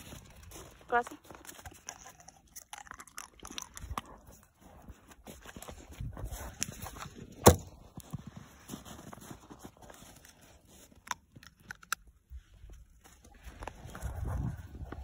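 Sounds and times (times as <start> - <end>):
ice cracking: 0.0 - 4.2
dog crunching ice: 0.0 - 7.8, 9.0 - 12.3.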